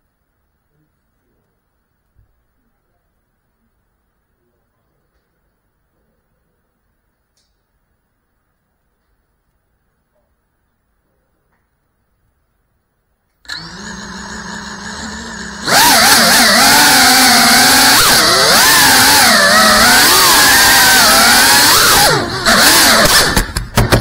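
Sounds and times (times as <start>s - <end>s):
drone motors and propellers: 13.5s - 23.9s.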